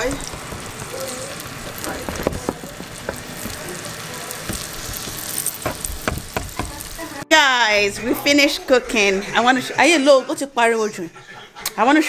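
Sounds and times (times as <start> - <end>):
oil clicks and pops: 0.0 - 6.9
vegetables sizzling in hot oil: 0.0 - 7.3.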